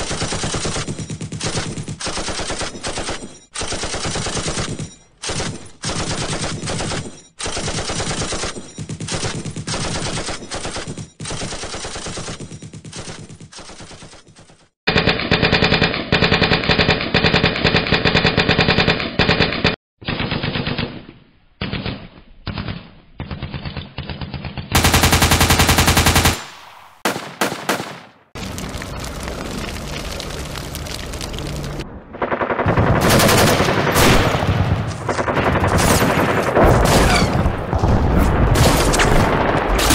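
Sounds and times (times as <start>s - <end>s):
machine-gun fire bursts: 0.0s - 14.3s, 24.8s - 28.3s, 32.1s - 39.9s.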